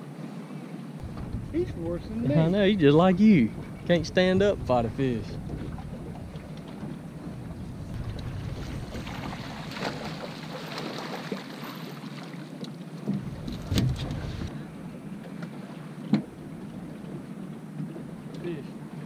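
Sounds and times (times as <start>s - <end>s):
water noise: 0.0s - 19.0s
wind buffeting microphone: 1.0s - 10.5s, 13.1s - 15.1s
knocks on boat hull: 13.1s - 14.4s.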